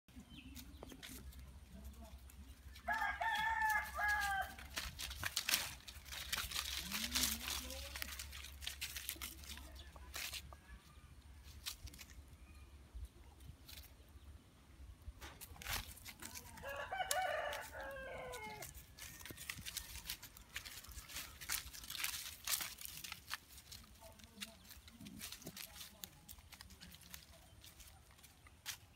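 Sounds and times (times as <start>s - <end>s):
crackles and rustles on leaves: 0.1s - 14.3s, 15.0s - 28.9s
rooster crowing: 2.8s - 4.7s, 16.6s - 18.8s.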